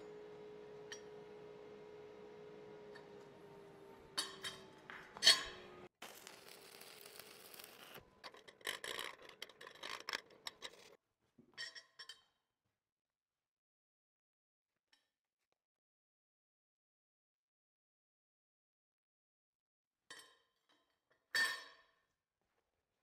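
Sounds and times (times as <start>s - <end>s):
faint hum: 0.0s - 5.9s
metal scraping on metal: 2.9s - 11.0s.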